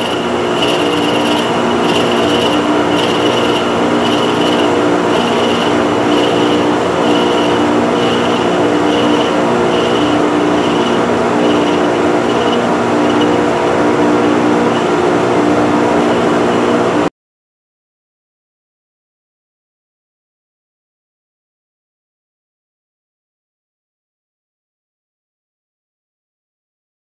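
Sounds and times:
high pulsing tone: 0.0s - 15.0s
lathe running: 0.0s - 17.1s.

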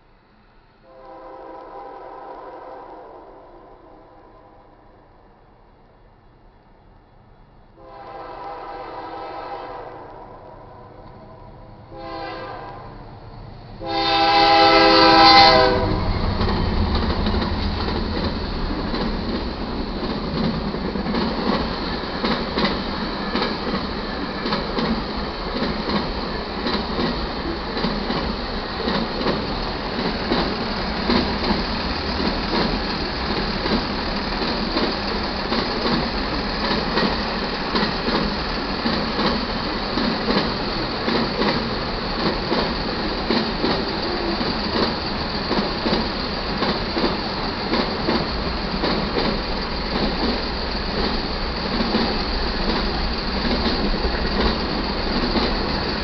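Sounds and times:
train rumbling by: 0.0s - 56.0s
locomotive air horn blasts: 0.8s - 4.8s, 7.8s - 13.0s, 13.8s - 16.2s
wheels clicking over rail joints: 16.2s - 56.0s.

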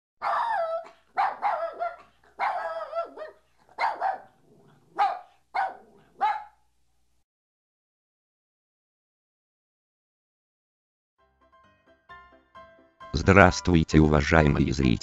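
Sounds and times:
dog barking: 0.2s - 6.6s.

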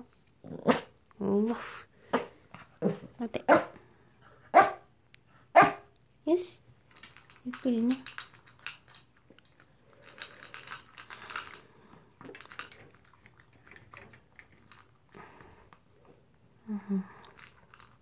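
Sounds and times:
dog crunching and chewing food: 6.8s - 16.0s, 17.2s - 18.0s.

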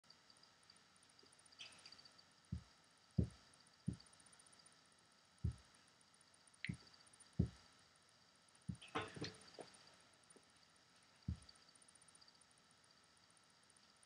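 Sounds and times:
soft dull thumps: 2.5s - 4.1s, 5.4s - 5.7s, 7.4s - 7.6s, 8.7s - 9.8s, 11.3s - 11.5s.

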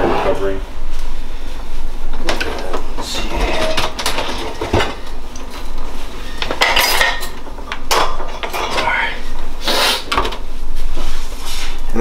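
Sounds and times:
cutlery and dishes clattering: 6.4s - 8.9s.

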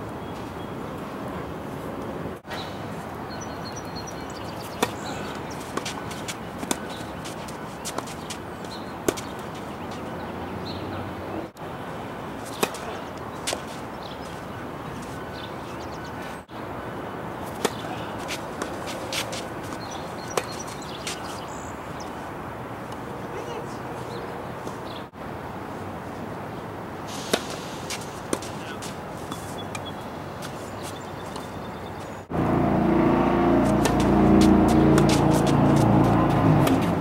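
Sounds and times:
tennis balls struck and bouncing: 4.7s - 10.1s, 12.4s - 14.4s, 17.4s - 21.2s, 27.2s - 30.5s, 33.1s - 37.0s
steady background hiss: 11.4s - 32.3s.

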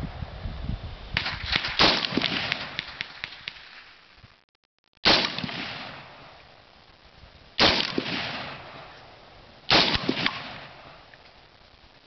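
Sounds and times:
rifle shots with echo: 1.2s - 4.0s, 5.0s - 6.4s, 7.6s - 9.0s, 9.7s - 11.1s.

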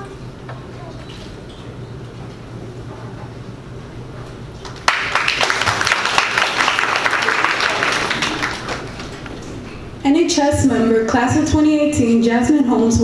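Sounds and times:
low steady hum: 0.0s - 13.0s
audience applauding: 4.6s - 9.4s.

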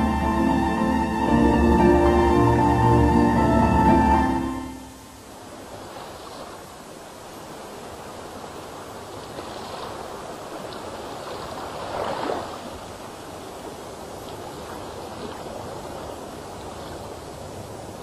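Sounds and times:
water lapping around wooden boat: 5.4s - 18.0s.

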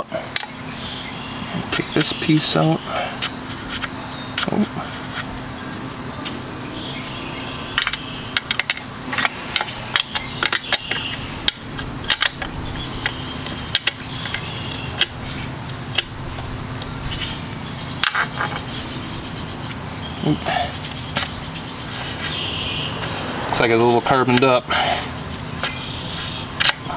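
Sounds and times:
insect chirping: 6.3s - 26.9s.

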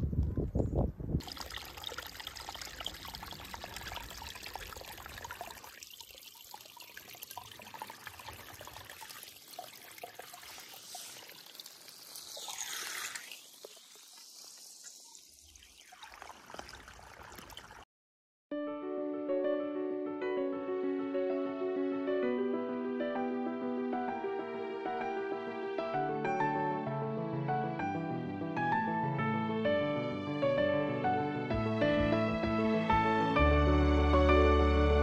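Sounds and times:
water trickling down a gully: 1.2s - 17.9s
soft piano music: 18.5s - 35.0s.

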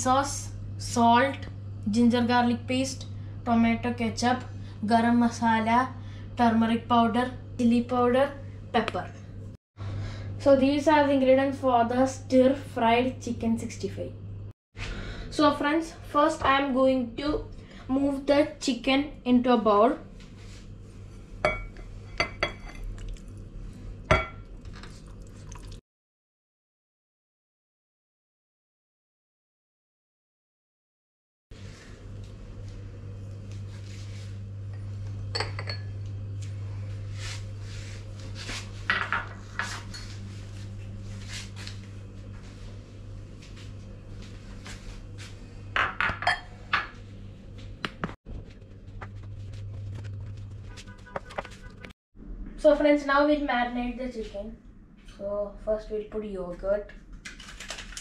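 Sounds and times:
steady low hum: 0.0s - 25.8s, 31.6s - 57.3s
glass bowls clinking: 21.4s - 23.2s, 35.3s - 36.0s, 45.8s - 47.0s.

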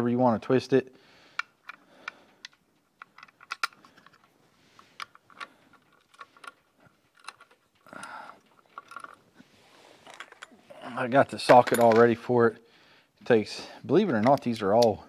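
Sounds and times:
hardware clicks and taps: 1.3s - 9.2s.

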